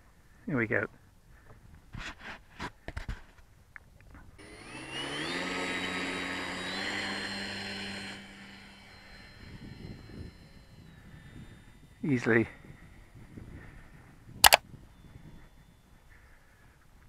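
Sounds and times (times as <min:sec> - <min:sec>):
model plane motor whine: 0:04.4 - 0:16.9.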